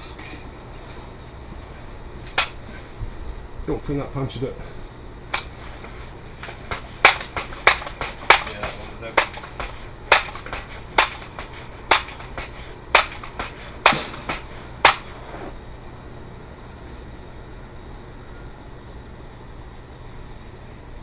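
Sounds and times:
air rifle shots: 12.9s - 15.1s.

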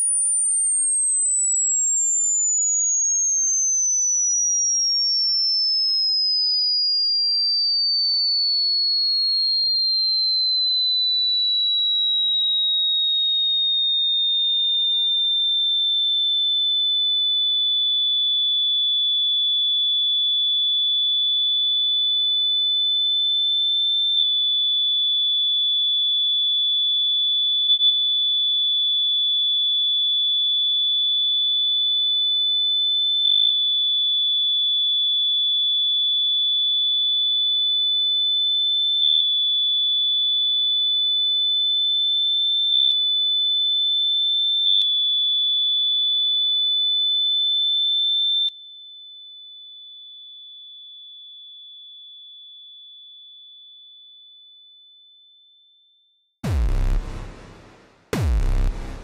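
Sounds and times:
high electronic tone: 56.4s - 59.0s.

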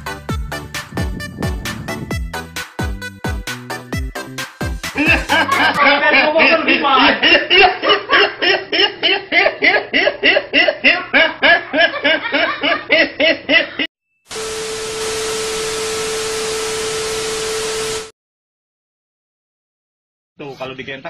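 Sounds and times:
boy laughing: 5.0s - 13.9s
television static hiss: 14.3s - 18.1s.

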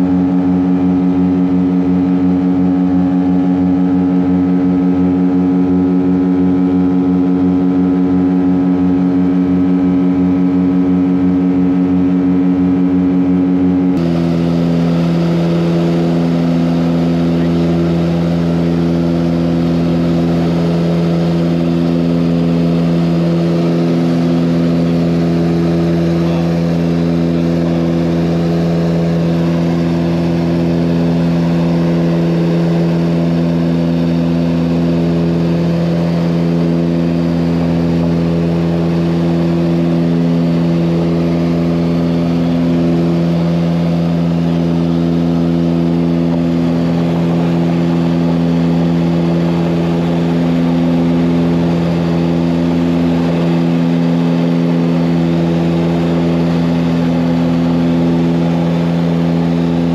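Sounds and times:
engine drone inside vehicle: 0.0s - 59.9s.

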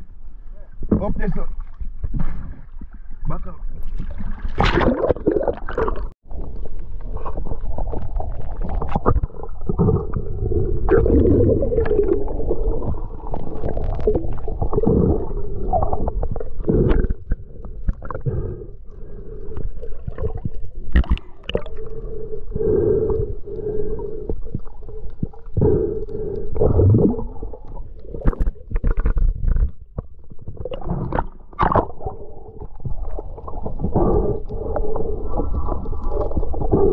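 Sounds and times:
underwater rumbling and gurgling: 0.0s - 36.9s
underwater clicks and knocks: 27.6s - 32.0s.

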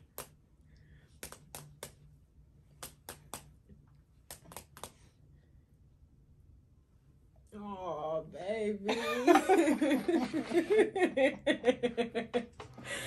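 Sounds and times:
fists slapping palms: 0.0s - 0.4s, 1.1s - 5.1s.

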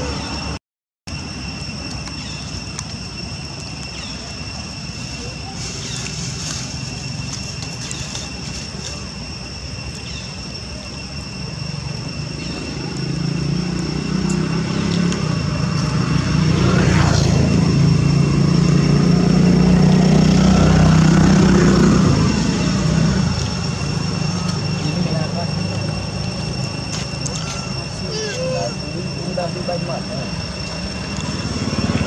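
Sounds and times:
steady high-pitched whine: 0.0s - 32.0s
passing vehicle engine drone: 10.5s - 32.0s.

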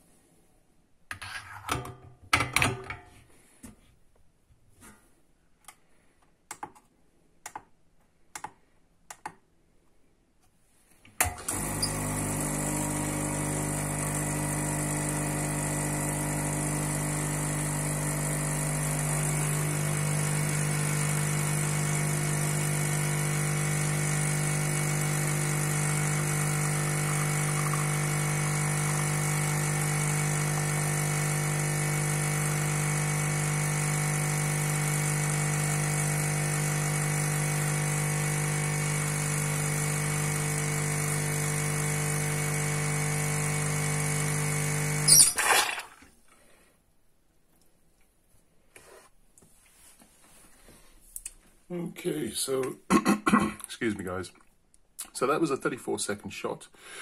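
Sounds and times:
espresso machine pump humming: 11.3s - 45.3s.

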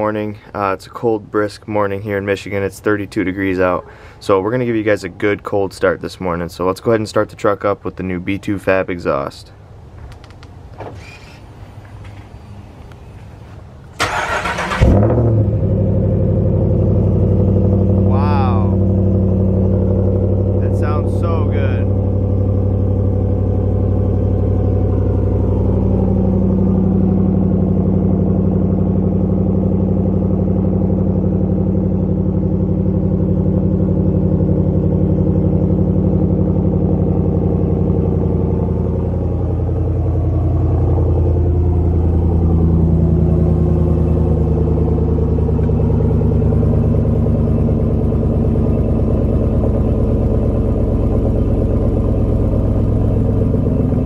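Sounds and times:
rumbling engine idling: 11.4s - 54.0s.

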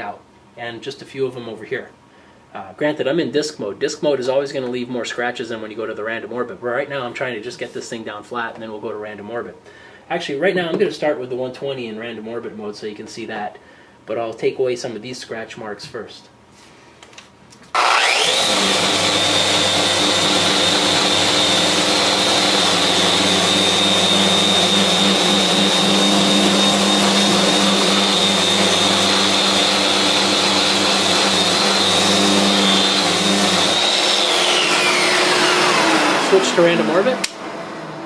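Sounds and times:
sander whining: 17.7s - 38.0s
dust extractor running: 17.8s - 38.0s.

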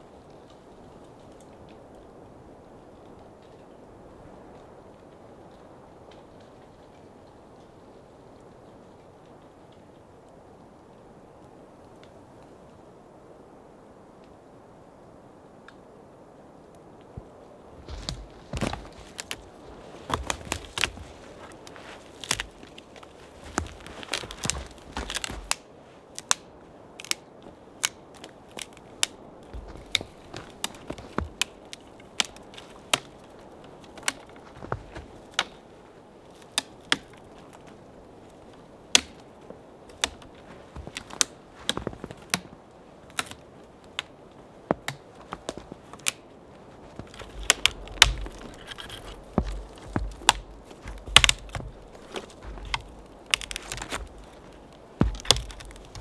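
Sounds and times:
twigs snapping: 17.0s - 56.0s.

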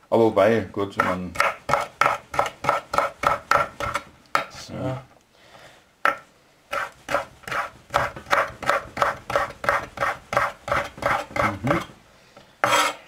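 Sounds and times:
knife chopping on wooden board: 1.0s - 4.5s, 6.1s - 11.8s.

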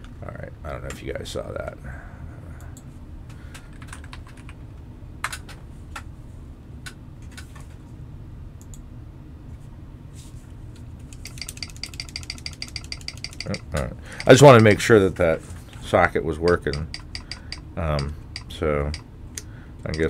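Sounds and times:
low steady hum: 0.0s - 20.0s
keyboard key presses clicking: 11.1s - 14.8s, 16.5s - 19.0s.

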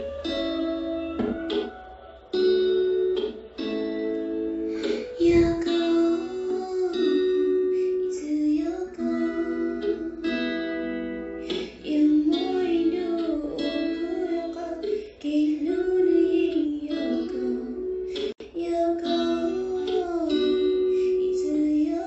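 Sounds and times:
guitar accompaniment: 0.0s - 22.0s
high voice singing: 4.7s - 10.9s, 11.5s - 22.0s.

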